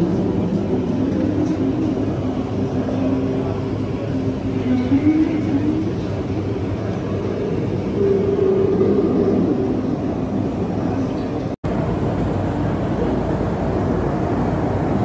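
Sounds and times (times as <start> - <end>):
faint voices: 0.0 - 11.6
hall background rumble: 0.0 - 15.0.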